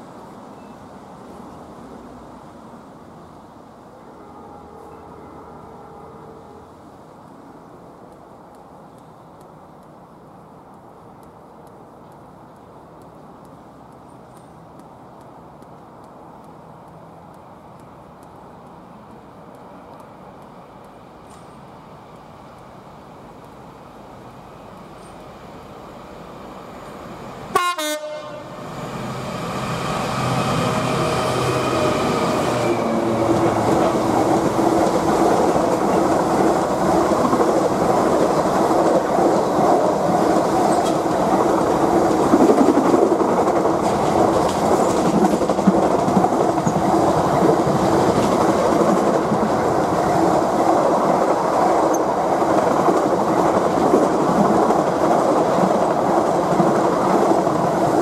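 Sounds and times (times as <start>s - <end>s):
diesel locomotive passing: 0.2s - 58.0s
locomotive horn blast: 4.1s - 6.7s, 27.5s - 28.6s
train wheels rumbling and clacking: 28.5s - 58.0s.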